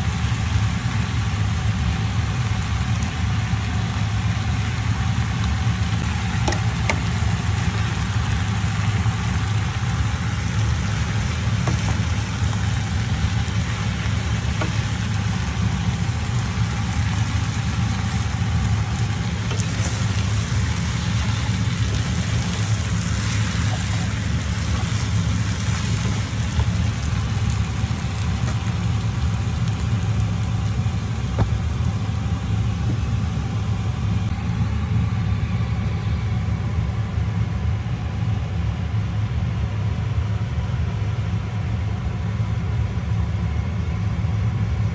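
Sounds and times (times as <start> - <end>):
noodles sizzling in a frying pan: 0.0 - 34.3
steady low hum: 0.0 - 44.9.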